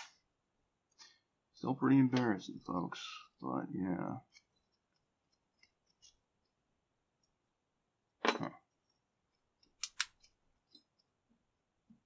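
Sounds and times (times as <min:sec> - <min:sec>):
padlock and keys clicking: 0:09.6 - 0:10.3.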